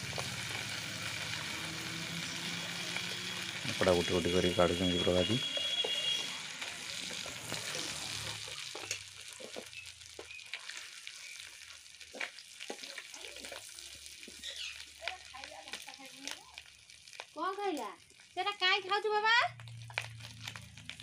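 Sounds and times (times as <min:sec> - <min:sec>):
hot oil sizzling: 0:00.0 - 0:21.0
spatula clinking and scraping: 0:05.4 - 0:10.9, 0:12.1 - 0:14.5.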